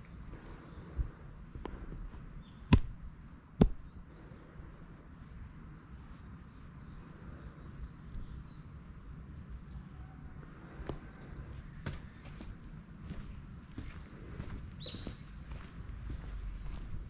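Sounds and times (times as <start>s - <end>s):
insects trilling: 0.0s - 17.0s
sharp knocks: 2.7s - 3.0s.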